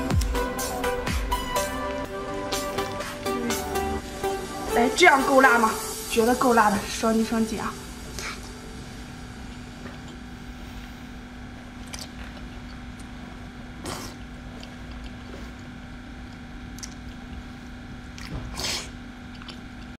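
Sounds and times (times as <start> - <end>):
steady low hum: 0.0 - 20.0
wet chewing and slurping: 11.7 - 20.0.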